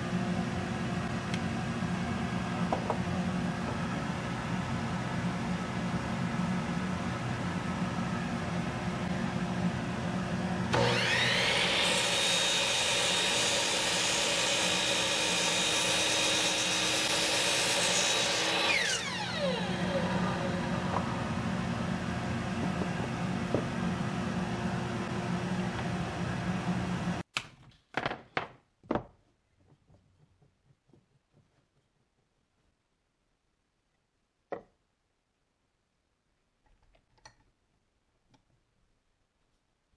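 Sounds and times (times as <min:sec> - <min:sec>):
saw blade cutting wood: 0:10.7 - 0:21.2
miter saw motor whining: 0:10.7 - 0:22.9
steady low hum: 0:19.4 - 0:27.2.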